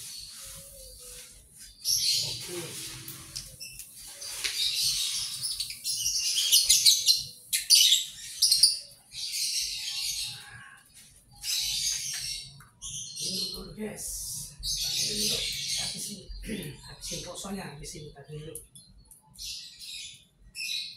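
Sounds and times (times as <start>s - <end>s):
birds chirping: 0.0s - 20.9s.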